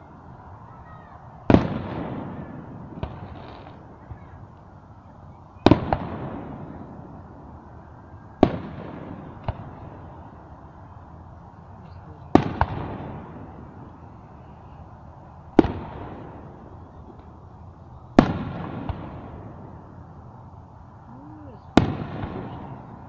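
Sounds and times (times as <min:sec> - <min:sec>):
small firework cracks: 0:00.8 - 0:07.6, 0:08.4 - 0:10.5, 0:12.2 - 0:14.8, 0:15.5 - 0:17.5, 0:18.1 - 0:20.0, 0:21.5 - 0:23.0
firework shells booming: 0:01.5 - 0:04.2, 0:05.6 - 0:07.2, 0:08.4 - 0:10.2, 0:12.3 - 0:13.8, 0:15.5 - 0:17.4, 0:18.2 - 0:19.8, 0:21.6 - 0:23.0
rolling echo: 0:12.1 - 0:17.5.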